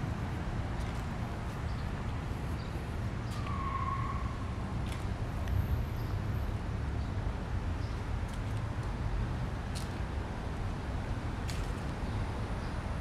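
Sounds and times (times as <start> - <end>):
rumble of passing cars: 0.0 - 13.0.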